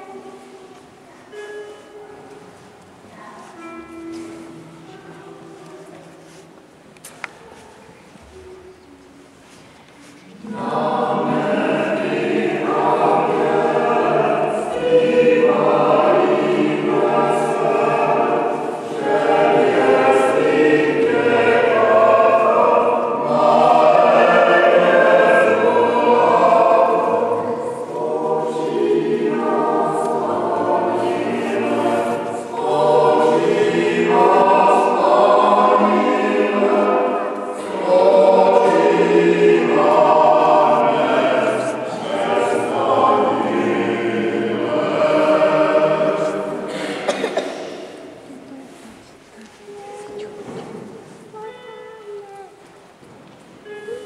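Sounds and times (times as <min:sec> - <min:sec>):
choir singing: 0:10.3 - 0:51.9.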